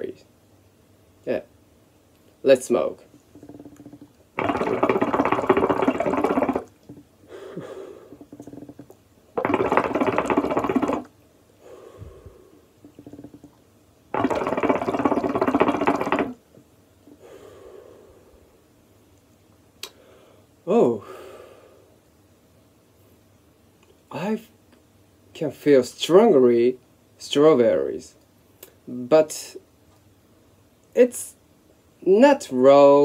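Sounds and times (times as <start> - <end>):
water bubbling in shisha: 3.3 - 7.1, 8.1 - 11.1, 12.8 - 16.4
person exhaling smoke: 7.2 - 8.8, 11.6 - 13.1, 17.1 - 18.5.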